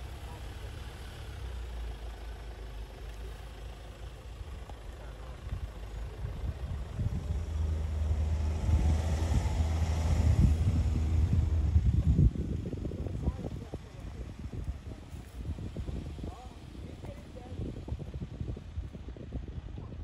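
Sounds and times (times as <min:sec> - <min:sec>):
diesel engine running low: 0:00.0 - 0:20.0.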